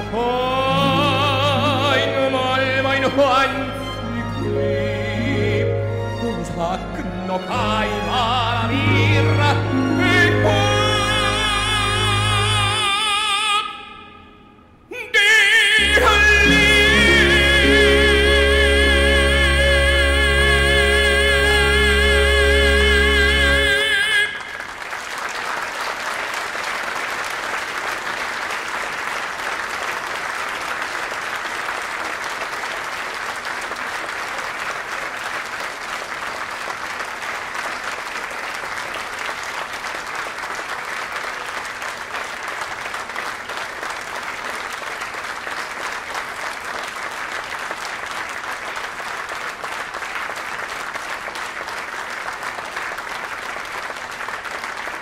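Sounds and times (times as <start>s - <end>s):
audience applauding: 0.0s - 4.6s, 15.8s - 55.0s.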